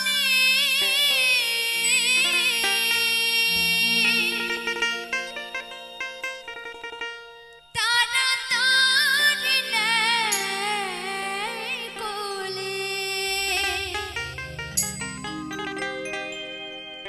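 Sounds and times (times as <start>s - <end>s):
woman singing: 0.0s - 5.6s, 7.8s - 14.6s
keyboard accompaniment: 0.0s - 17.0s
low bass notes: 13.2s - 16.3s.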